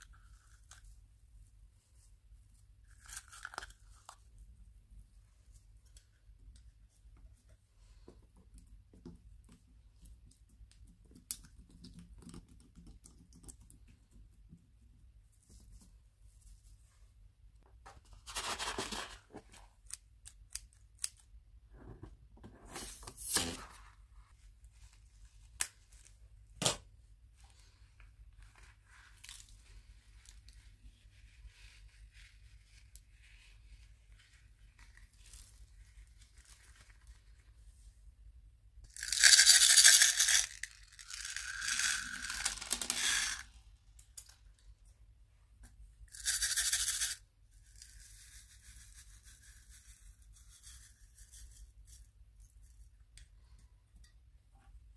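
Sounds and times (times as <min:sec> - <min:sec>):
sprinkles being poured: 0:38.9 - 0:43.4.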